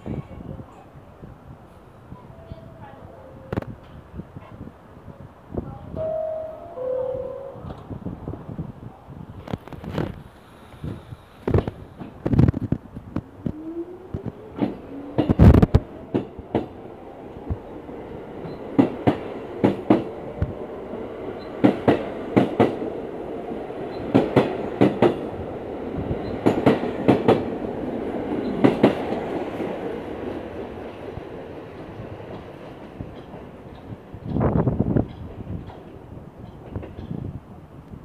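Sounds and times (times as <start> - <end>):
train wheels clacking: 18.4 - 20.2, 21.3 - 22.9, 23.7 - 25.3, 26.2 - 29.7.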